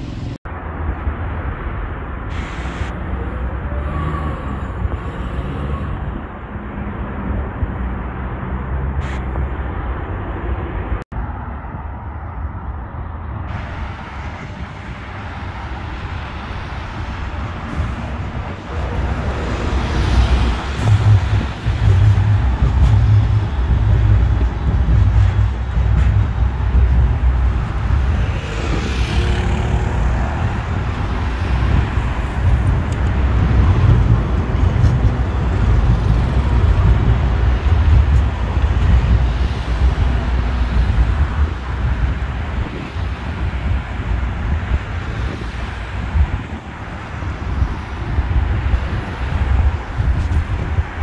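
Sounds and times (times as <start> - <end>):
road traffic passing: 0.0 - 51.0
heavy low rumble: 13.0 - 42.8.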